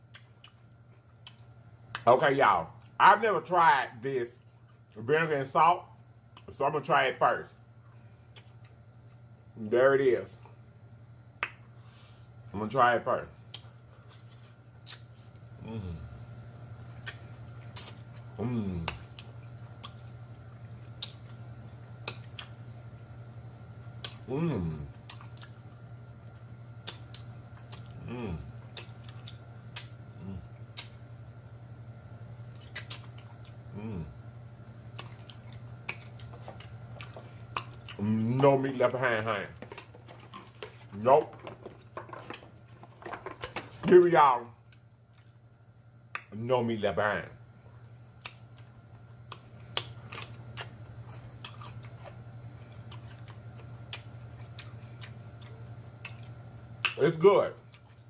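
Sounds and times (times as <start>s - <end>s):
person crunching and chewing vegetable: 0.0s - 3.6s, 11.8s - 31.0s, 32.2s - 45.4s, 47.7s - 58.0s
steady low hum: 0.0s - 58.0s
person humming mmm: 15.6s - 16.2s, 18.4s - 19.0s, 24.2s - 24.9s, 28.0s - 28.6s, 30.2s - 30.5s, 33.7s - 34.2s
wet mouth clicks and lip smacks: 32.6s - 33.5s.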